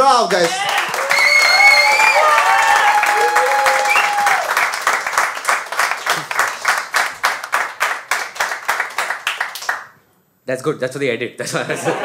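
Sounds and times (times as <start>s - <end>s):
audience applauding: 0.3s - 9.9s
whistled cheers: 0.6s - 4.6s.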